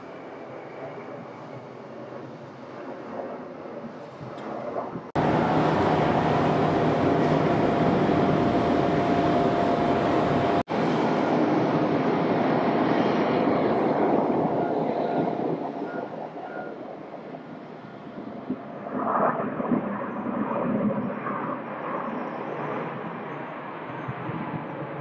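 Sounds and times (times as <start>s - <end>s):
jet engine noise on runway: 0.0s - 25.0s
jet engines with high whine: 0.0s - 25.0s
departing airliner rumble: 3.9s - 19.2s.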